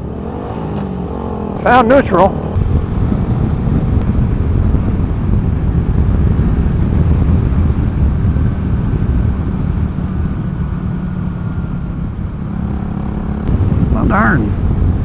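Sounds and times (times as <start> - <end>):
motorcycle engine running: 0.0 - 15.0
wind rumble on microphone: 0.0 - 15.0.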